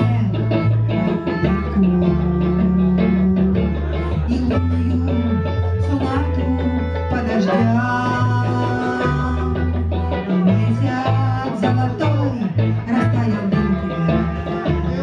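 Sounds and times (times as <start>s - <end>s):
bass line: 0.0s - 15.0s
electric guitar: 0.0s - 15.0s
woman singing into microphone: 0.0s - 15.0s.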